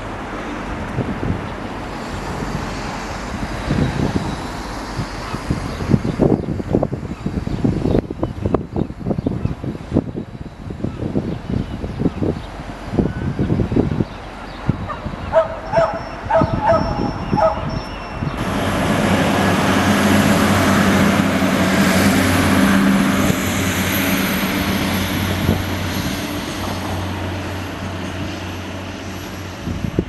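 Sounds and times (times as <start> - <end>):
heavy vehicle engine hum: 0.0 - 30.0
dog barking: 14.9 - 17.6.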